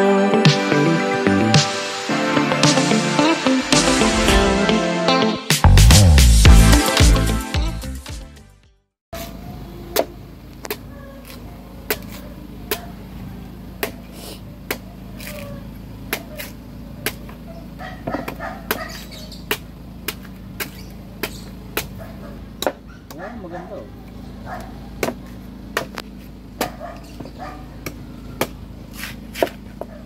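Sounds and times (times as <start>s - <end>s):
music intro: 0.0s - 8.9s
machete chopping coconut: 9.9s - 13.0s, 13.8s - 15.5s, 16.1s - 17.4s, 18.0s - 22.0s, 22.6s - 23.2s, 25.0s - 26.8s, 27.8s - 29.7s.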